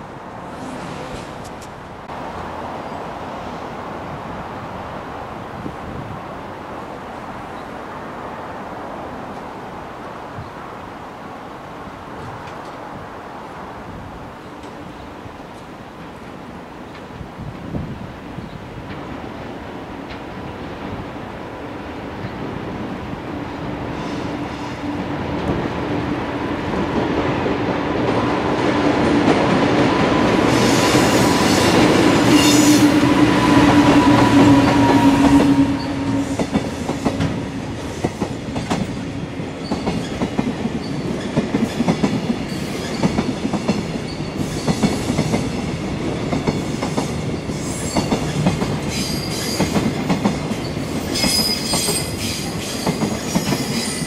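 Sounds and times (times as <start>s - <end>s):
electric locomotive humming: 0.0s - 54.0s.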